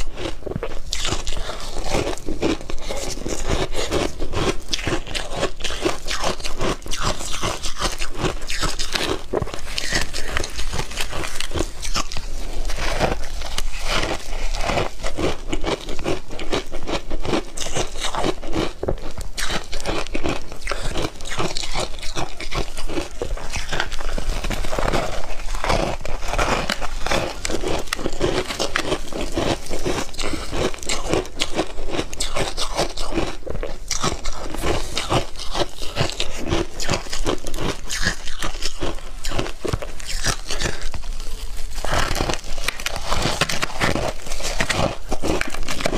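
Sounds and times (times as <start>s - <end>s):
ice crunching between teeth: 0.0s - 45.9s.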